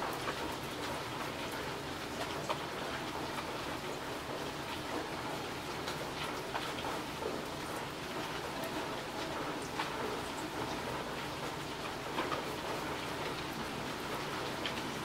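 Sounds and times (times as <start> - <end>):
rain on a wet road: 0.0 - 15.0.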